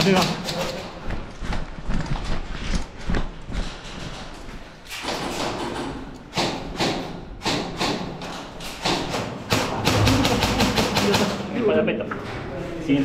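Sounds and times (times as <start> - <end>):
footsteps: 0.2 - 5.7.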